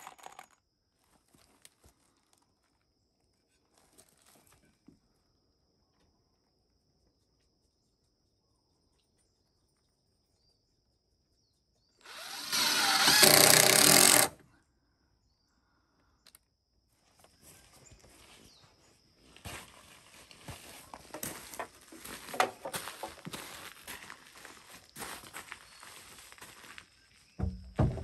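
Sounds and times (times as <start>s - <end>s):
power tool running: 12.1s - 14.4s.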